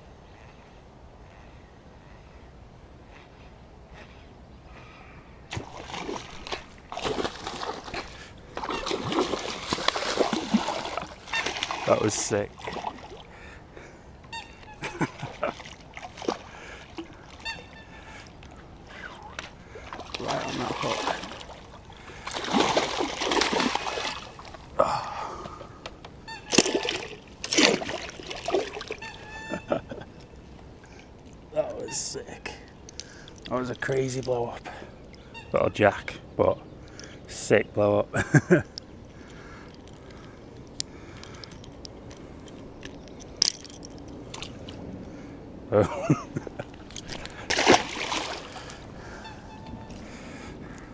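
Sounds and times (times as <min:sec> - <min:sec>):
fish thrashing at water surface: 0:05.5 - 0:13.2, 0:19.8 - 0:24.7, 0:26.5 - 0:29.1, 0:46.8 - 0:48.9.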